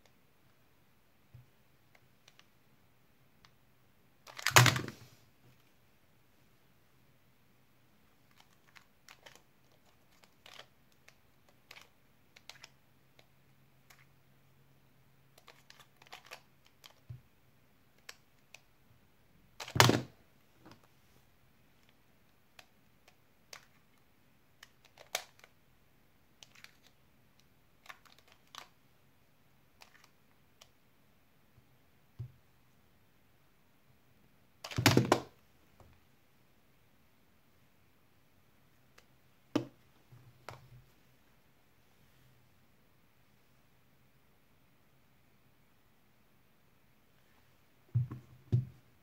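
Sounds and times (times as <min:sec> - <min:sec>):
plastic puzzle cube clicks: 0:04.3 - 0:05.0, 0:08.3 - 0:13.3, 0:15.4 - 0:17.1, 0:19.6 - 0:20.1, 0:24.6 - 0:25.6, 0:26.4 - 0:28.8, 0:29.8 - 0:30.7, 0:34.6 - 0:35.3.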